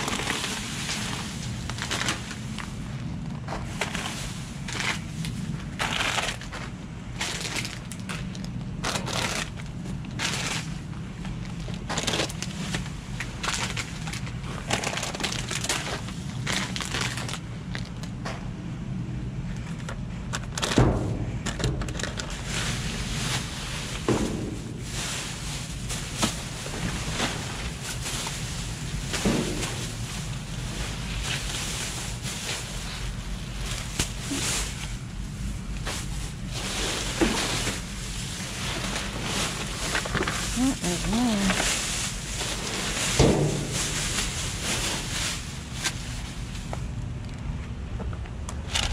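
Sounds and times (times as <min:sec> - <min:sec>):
plastic bags crinkling: 0:00.0 - 0:18.2, 0:21.5 - 0:46.7
steady low hum: 0:00.0 - 0:48.9.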